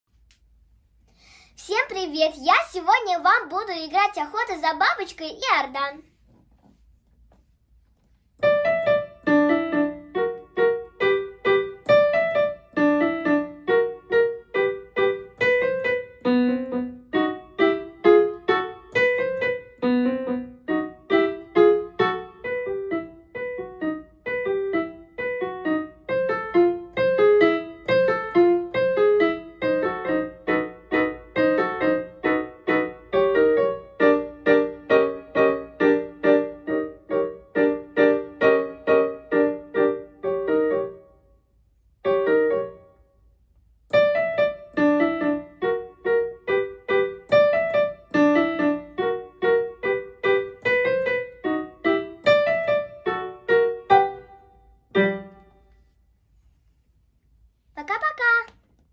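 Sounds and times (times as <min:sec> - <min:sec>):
digital piano playing lively piece: 0:08.4 - 0:41.2, 0:42.0 - 0:43.0, 0:43.9 - 0:55.6.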